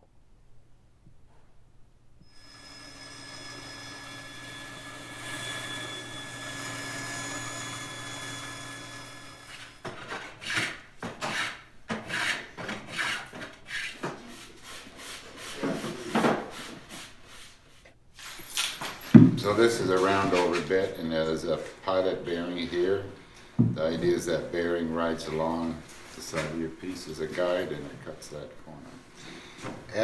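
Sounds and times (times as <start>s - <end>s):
steady tonal hum: 2.2s - 9.8s, 19.0s - 30.0s
hand tool rasping on wood: 9.3s - 15.8s.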